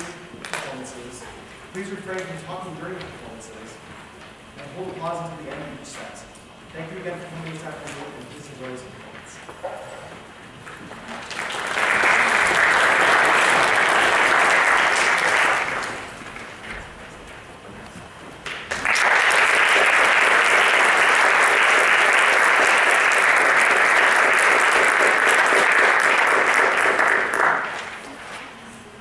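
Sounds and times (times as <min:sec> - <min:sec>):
audience applauding: 0:10.9 - 0:16.7, 0:18.4 - 0:28.1.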